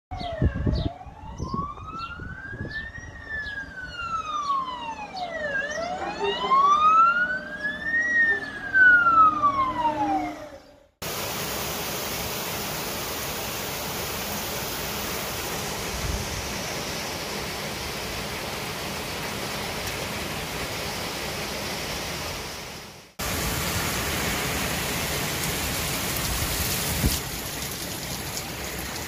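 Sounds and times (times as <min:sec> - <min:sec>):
fire engine siren wailing: 0:00.1 - 0:10.9
torrential rain hissing: 0:11.0 - 0:29.0.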